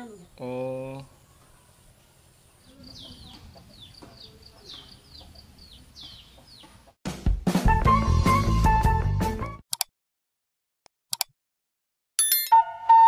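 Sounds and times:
chicks peeping: 2.6 - 7.0
hen clucking: 2.7 - 7.0.

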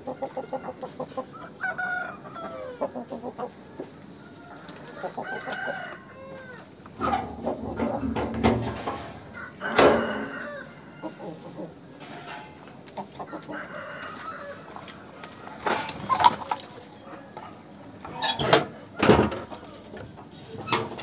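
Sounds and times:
chickens clucking: 0.0 - 21.0
rooster crowing: 0.2 - 2.9, 4.3 - 6.8, 9.3 - 11.4, 13.3 - 15.2.

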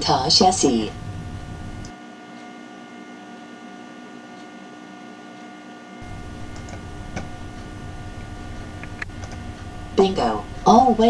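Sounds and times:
low hiss: 0.0 - 1.9, 6.0 - 11.0
computer electrical hum: 0.0 - 11.0
light clicks: 6.1 - 7.7, 8.6 - 9.6.

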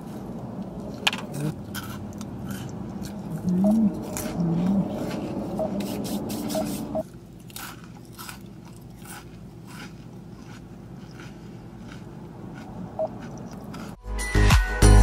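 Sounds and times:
steady tonal background sound: 0.0 - 7.0
person chewing crunchy snack: 0.0 - 14.0.

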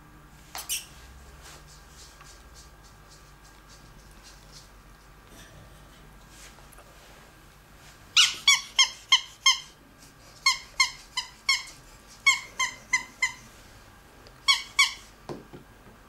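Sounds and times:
ferret squeaking: 0.6 - 1.0, 8.2 - 9.8, 10.4 - 13.5, 14.4 - 15.1.

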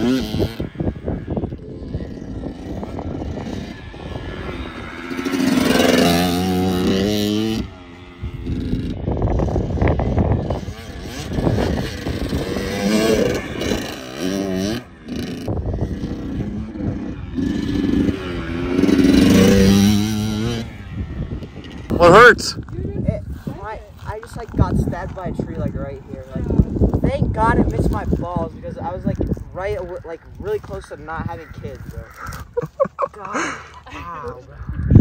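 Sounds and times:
dirt bike engine revving: 0.0 - 22.5.

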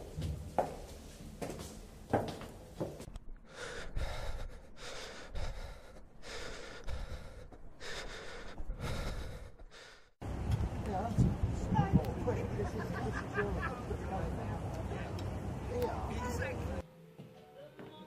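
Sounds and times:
person breathing heavily: 3.3 - 10.2.

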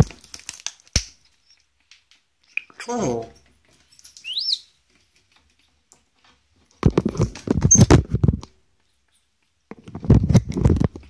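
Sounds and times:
parrot scratching and tapping phone: 6.7 - 8.5.

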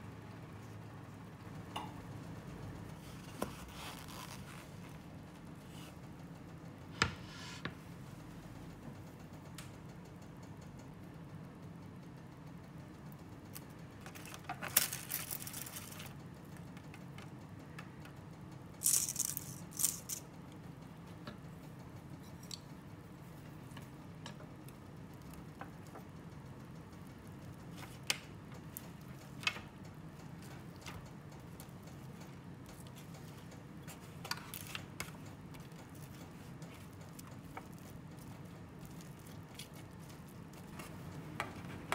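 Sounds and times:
low background hum: 0.0 - 41.9
aluminium foil crinkling: 13.5 - 16.2, 18.8 - 20.2, 33.9 - 41.1.

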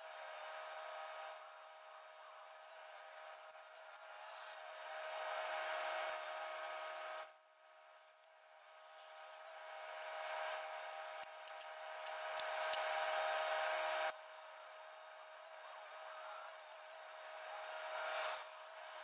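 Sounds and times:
sharp ticks: 11.2 - 12.8.

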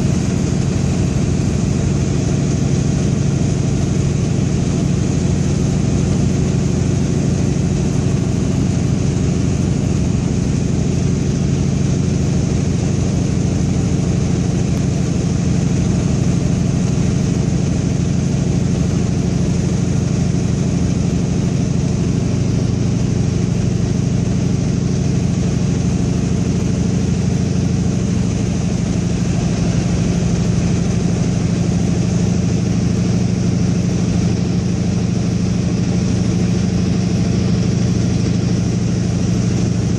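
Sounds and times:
propeller plane engine droning: 0.0 - 39.9.

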